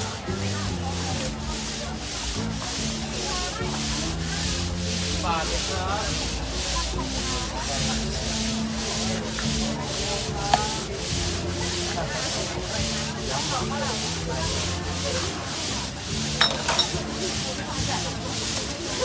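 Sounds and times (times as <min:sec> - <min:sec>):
faint voices: 0:00.0 - 0:19.0
sharp clink: 0:16.4 - 0:17.0.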